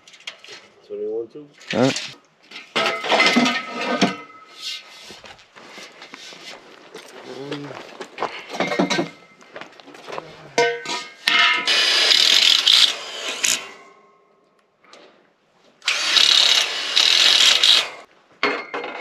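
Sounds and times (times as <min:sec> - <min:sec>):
steel tubing clanking: 0:10.6 - 0:11.7.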